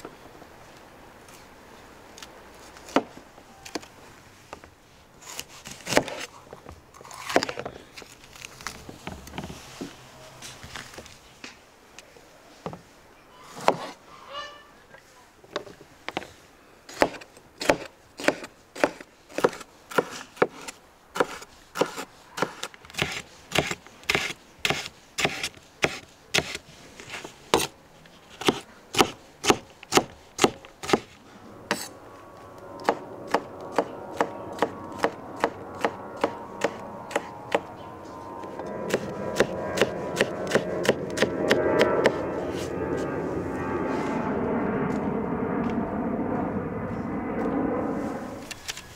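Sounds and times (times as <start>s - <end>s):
cleaver chopping on wooden board: 17.0s - 20.6s, 28.4s - 31.1s
steady drone: 30.6s - 48.8s.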